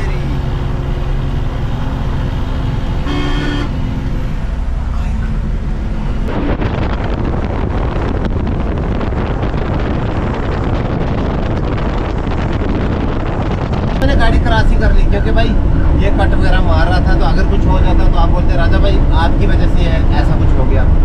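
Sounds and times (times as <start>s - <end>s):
truck engine running: 0.0s - 21.0s
vehicle horn blast: 3.0s - 3.8s
wind buffeting microphone: 4.0s - 21.0s.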